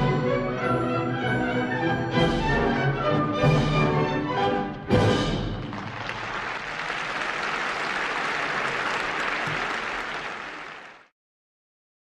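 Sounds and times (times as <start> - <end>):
audience applauding: 5.5 - 11.1.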